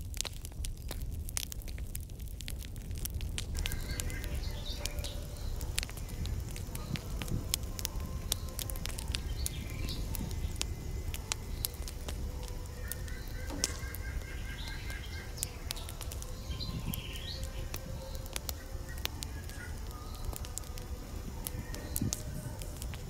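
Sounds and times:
rising bird chirps: 12.8 - 20.4
bird calling repeated notes: 12.9 - 15.5.

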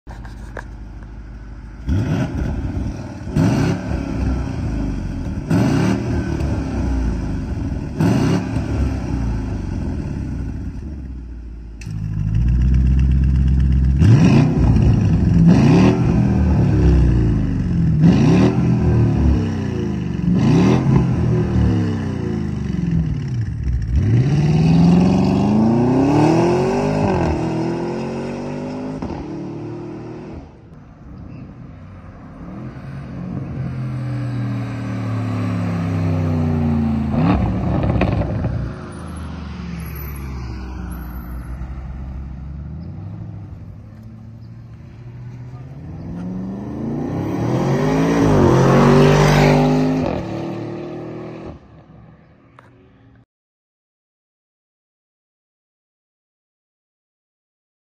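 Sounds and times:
engine revving: 1.8 - 10.7, 11.8 - 30.6, 32.4 - 41.0, 45.5 - 51.7
vehicle accelerating away: 11.9 - 30.5, 32.4 - 51.8.

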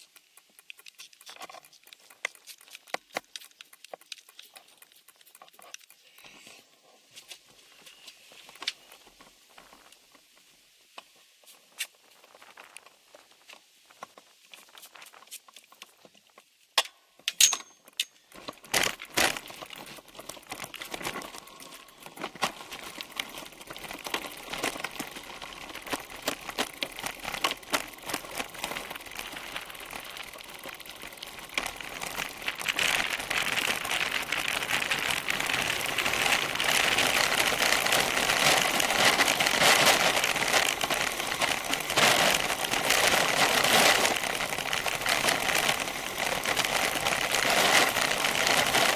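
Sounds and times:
bicycle tyres crunching gravel: 0.0 - 16.6, 18.2 - 48.9
bike rattling: 17.3 - 48.9.

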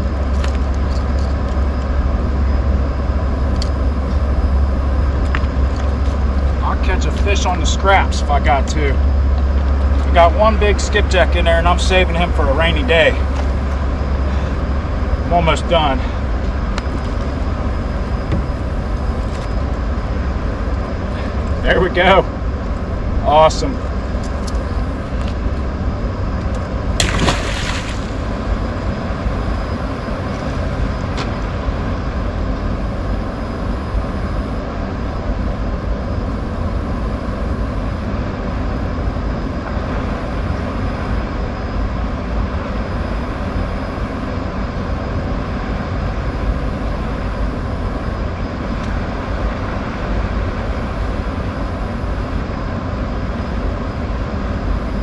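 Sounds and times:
steady low rumble: 0.0 - 55.0
fish splashing into water: 27.0 - 28.5.

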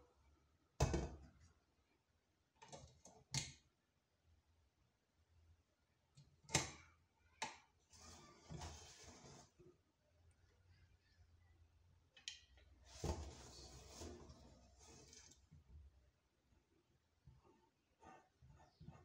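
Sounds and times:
metal scraping rub: 7.9 - 9.6.

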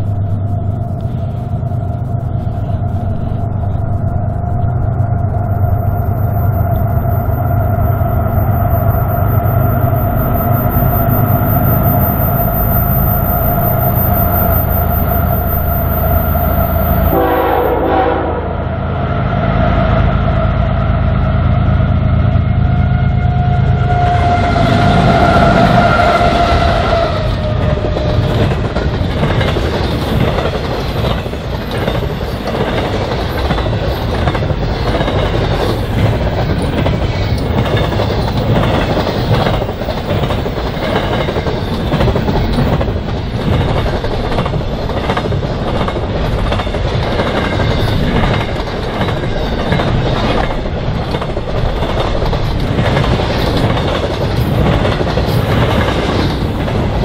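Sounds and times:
train wheels rolling: 0.0 - 18.0, 22.7 - 57.0
diesel locomotive engines droning: 0.0 - 57.0
train air horn chord: 17.0 - 18.6
wheels clicking over rail joints: 26.2 - 57.0.

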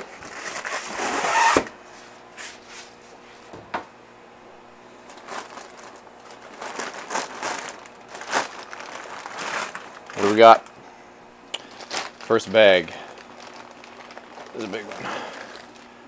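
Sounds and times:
plastic bags crinkling: 5.0 - 10.8, 11.5 - 16.0.

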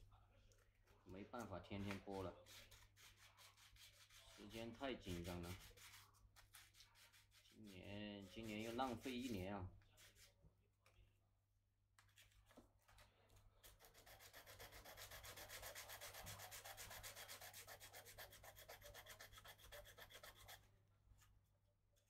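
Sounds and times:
hand sanding strokes: 2.4 - 9.4, 13.7 - 20.6.

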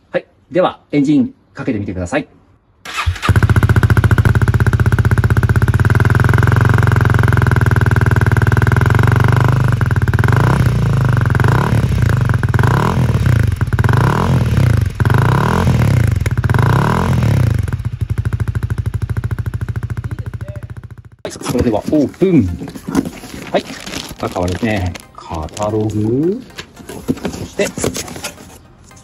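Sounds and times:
motorcycle engine idling and revving: 2.9 - 25.1.

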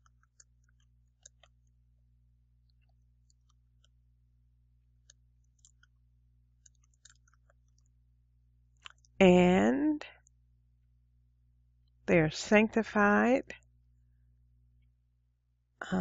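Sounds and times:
keyboard typing clicks: 6.6 - 7.8.

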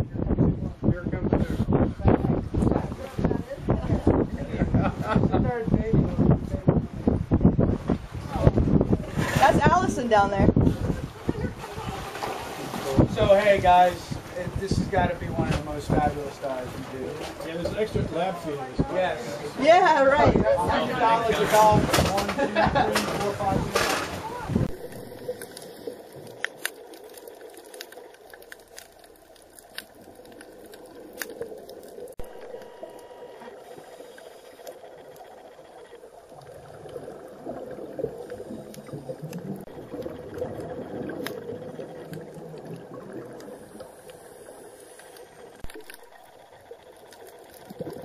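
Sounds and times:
underwater air bubbling: 0.0 - 48.0.

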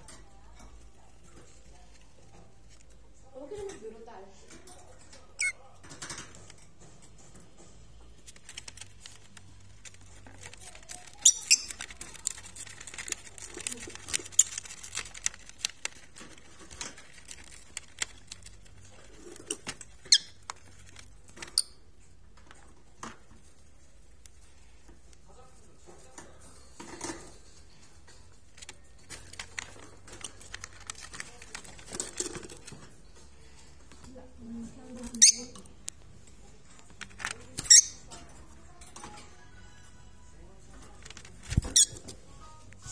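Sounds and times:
bird squeaks: 5.4 - 5.6, 11.1 - 11.8, 35.2 - 35.6, 37.6 - 38.0
bird shredding paper: 8.2 - 21.6, 28.6 - 32.9.

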